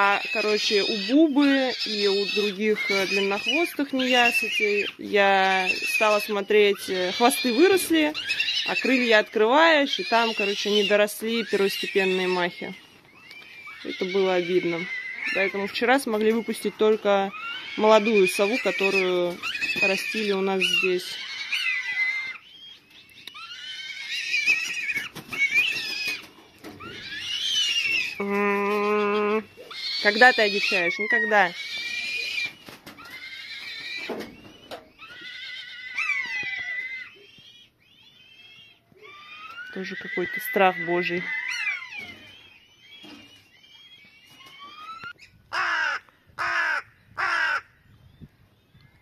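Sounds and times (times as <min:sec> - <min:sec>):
crow cawing: 0:45.5 - 0:47.8.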